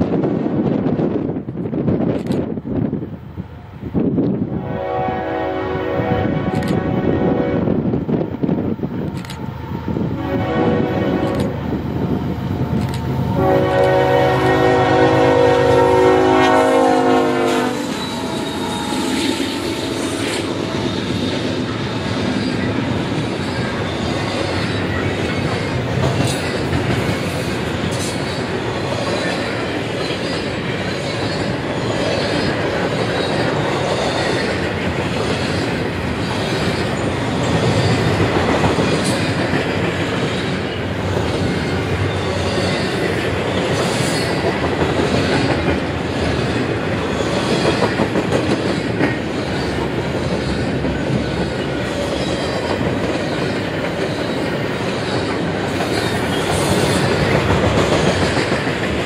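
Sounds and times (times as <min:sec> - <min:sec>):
sharp clicks: 0:12.8 - 0:13.1
freight train wheels clattering: 0:17.1 - 0:59.0.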